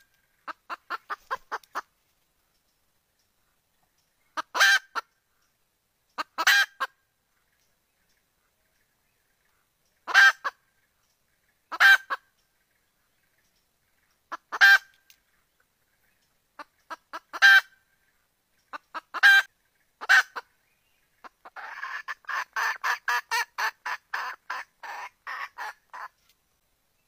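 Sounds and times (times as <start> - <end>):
hen clucking rapidly: 0.3 - 1.9, 4.4 - 5.1, 6.2 - 6.9, 10.0 - 10.6, 11.7 - 12.2, 14.3 - 14.9, 16.6 - 17.8, 18.7 - 20.5, 21.2 - 26.2
hen calling: 16.6 - 17.8, 21.2 - 26.2.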